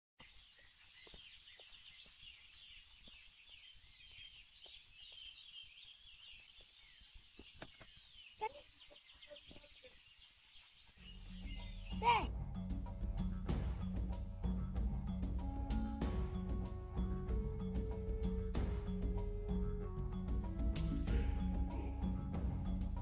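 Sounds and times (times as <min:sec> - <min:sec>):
lower bird calls: 0:00.2 - 0:12.3
small birds chirping: 0:00.2 - 0:12.3.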